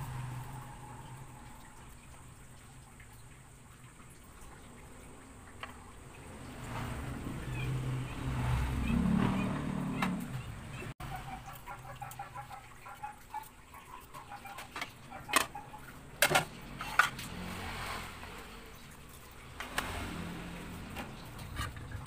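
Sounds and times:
animal calls: 0:07.4 - 0:16.0.

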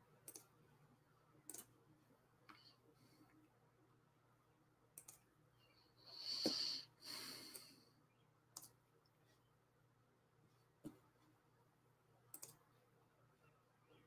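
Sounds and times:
computer mouse clicks: 0:00.2 - 0:00.6, 0:01.4 - 0:01.8, 0:05.0 - 0:05.3, 0:08.5 - 0:08.8, 0:12.3 - 0:12.7.

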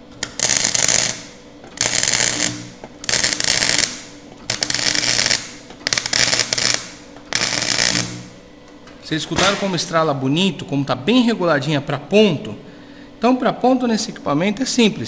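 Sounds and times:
welding arc crackle: 0:00.0 - 0:08.4
welder low hum: 0:00.0 - 0:08.6.

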